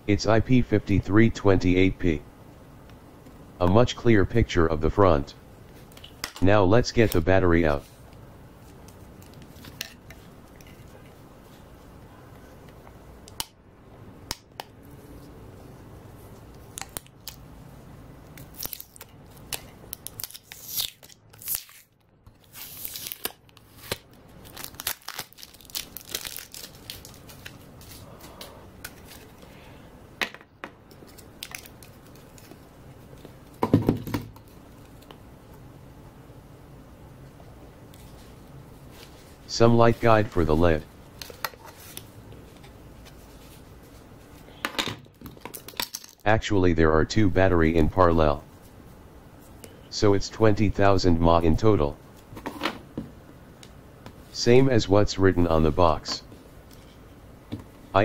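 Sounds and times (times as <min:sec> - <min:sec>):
tape and foil tearing: 0:18.4 - 0:27.6.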